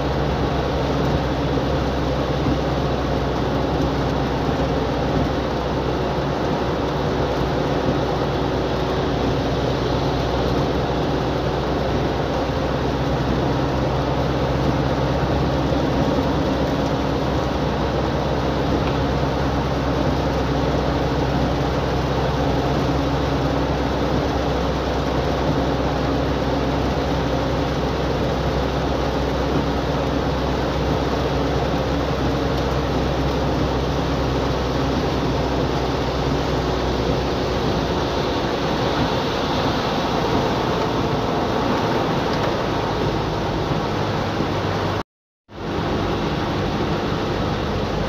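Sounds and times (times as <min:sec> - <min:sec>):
car engine and tyre noise: 0:00.0 - 0:48.0
heavy rain: 0:00.0 - 0:48.0.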